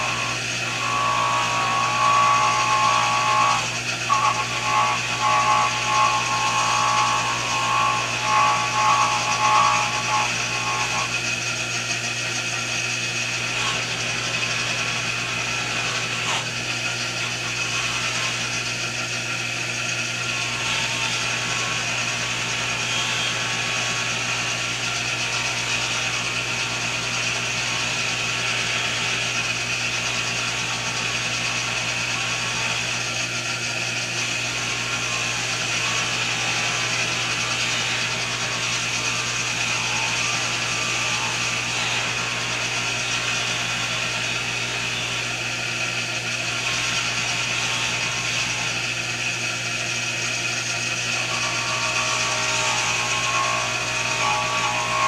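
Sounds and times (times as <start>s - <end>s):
pitched whine of brass buffing: 0.0s - 11.3s, 20.2s - 32.9s, 34.4s - 45.4s, 51.2s - 55.0s
bench buffer running: 0.0s - 55.0s.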